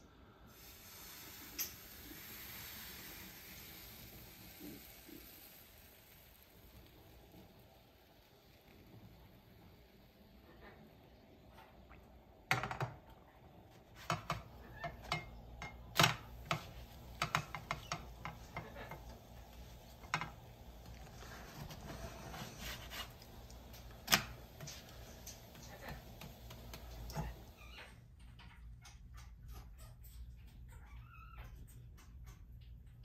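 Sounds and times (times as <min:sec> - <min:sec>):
spatula knocking on crepe pans: 0:14.0 - 0:21.7.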